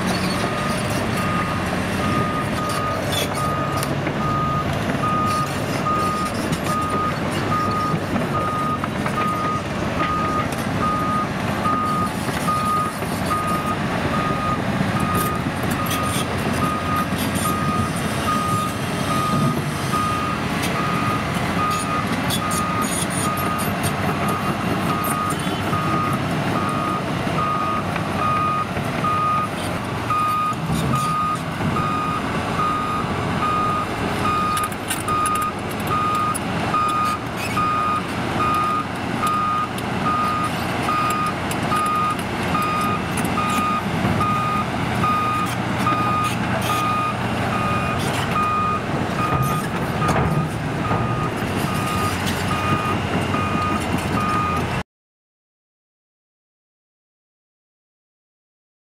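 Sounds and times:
excavator diesel drone: 0:00.0 - 0:54.8
back-up alarm beeping: 0:30.1 - 0:54.6.

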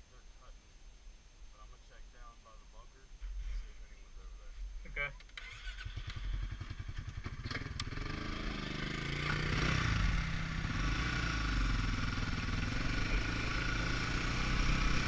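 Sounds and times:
atv engine revving: 0:05.0 - 0:15.0.

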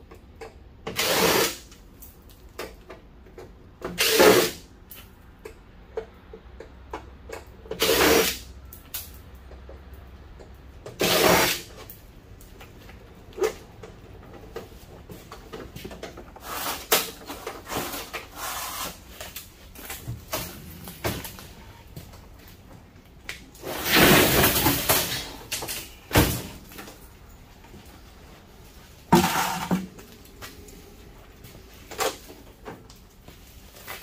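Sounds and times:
sheet-metal case clattering on workbench: 0:29.2 - 0:29.9.

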